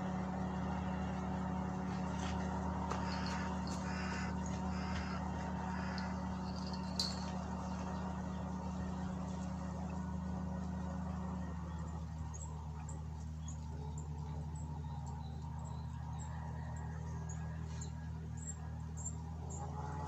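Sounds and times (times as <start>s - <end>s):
low mechanical hum: 0.0s - 20.0s.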